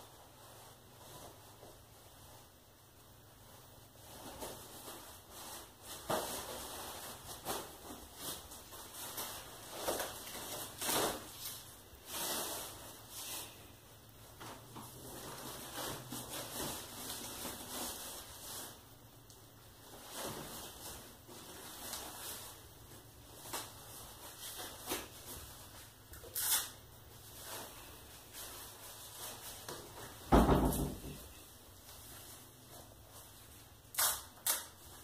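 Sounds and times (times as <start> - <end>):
thump in wood stove: 30.3 - 31.2.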